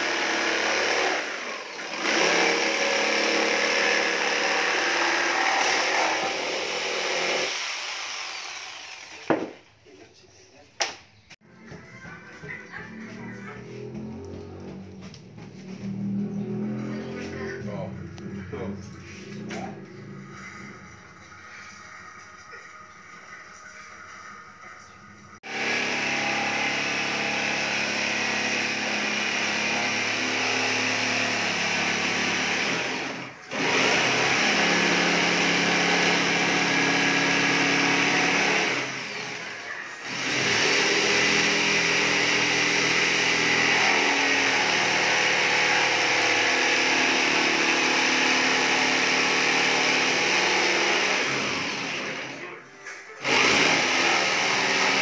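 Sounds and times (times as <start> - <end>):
jigsaw cutting plywood: 0.0 - 9.6, 25.4 - 52.5, 53.2 - 55.0.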